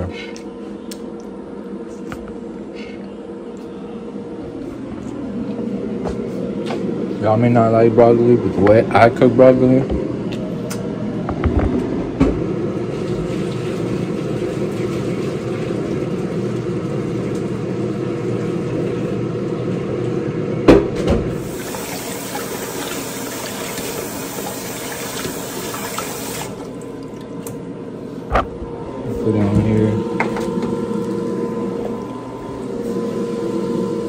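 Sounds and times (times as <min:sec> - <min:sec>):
tap water running into sink: 0:12.9 - 0:17.6, 0:21.4 - 0:27.3.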